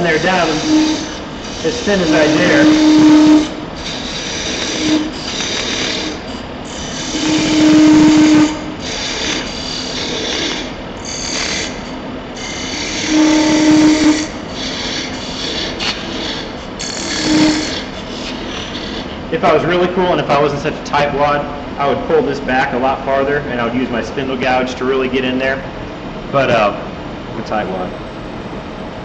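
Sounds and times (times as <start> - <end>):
turning tool scraping wood: 0.0 - 20.5
wood lathe spinning: 0.0 - 20.9.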